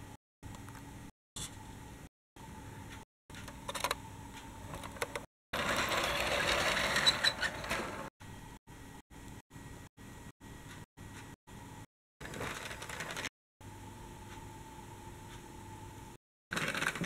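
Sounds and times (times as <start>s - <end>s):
toy tram rattling on track: 5.6s - 8.0s, 12.3s - 13.3s, 16.5s - 17.0s.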